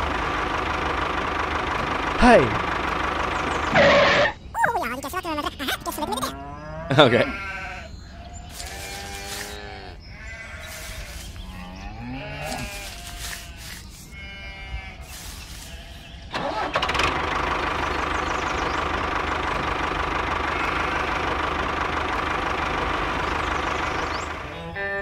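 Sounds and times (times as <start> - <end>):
farm animal bleating: 3.7 - 18.2, 18.9 - 25.0
small motor running: 8.5 - 9.8, 10.5 - 11.4, 12.3 - 14.4, 15.1 - 24.5.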